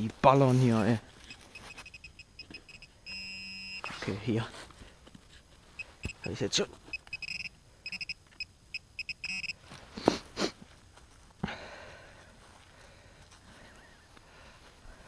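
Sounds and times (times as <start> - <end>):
soil scraping rustle: 0.0 - 2.0, 3.8 - 7.0
metal detector beeping: 1.2 - 3.9, 5.8 - 9.6.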